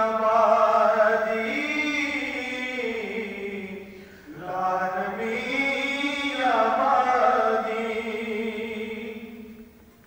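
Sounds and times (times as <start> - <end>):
person chanting: 0.0 - 9.5.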